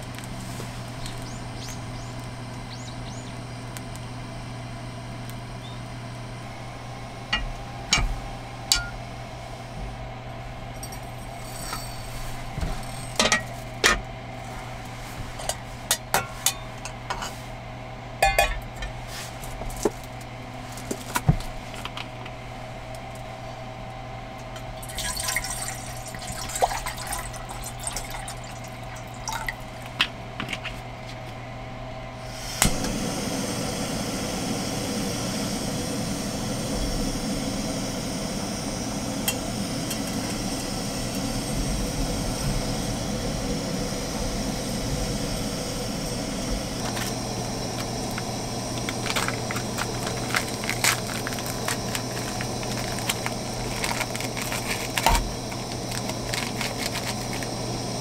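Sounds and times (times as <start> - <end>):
gas stove burner hissing: 0.0 - 17.6, 24.4 - 30.0, 32.1 - 58.0
steady low hum: 0.0 - 58.0
metal pot and spoon clinking: 18.2 - 18.6.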